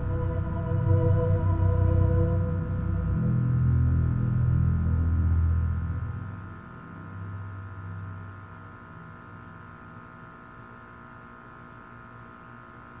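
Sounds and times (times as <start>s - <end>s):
background music hum: 0.0s - 8.8s
crickets trilling: 0.0s - 13.0s.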